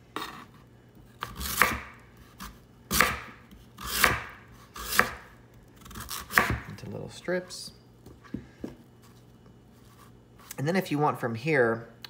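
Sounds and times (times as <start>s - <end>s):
knife slicing sweet potato: 1.2s - 6.8s.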